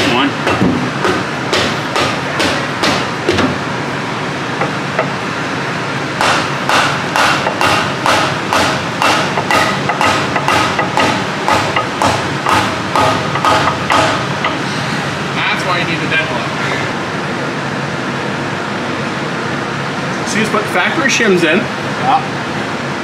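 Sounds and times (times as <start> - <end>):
mallet tapping on metal: 6.2 - 14.6.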